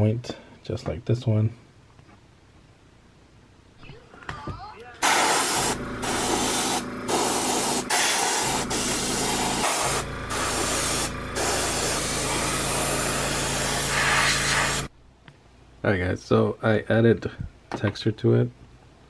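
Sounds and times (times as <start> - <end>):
airbrush spraying hiss: 5.0 - 14.9
steady low hum: 5.0 - 15.1.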